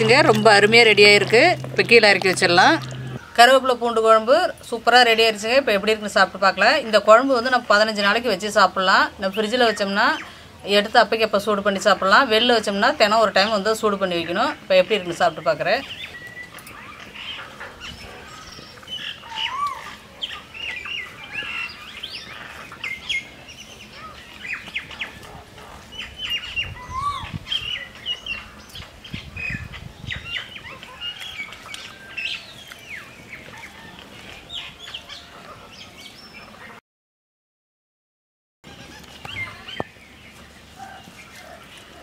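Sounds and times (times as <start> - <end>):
small birds chirping: 6.7 - 36.8, 38.7 - 42.0.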